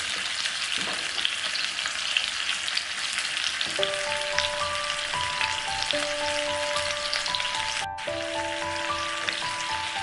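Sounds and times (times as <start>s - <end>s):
food frying sizzle: 0.0s - 10.0s
soft background music: 3.7s - 10.0s.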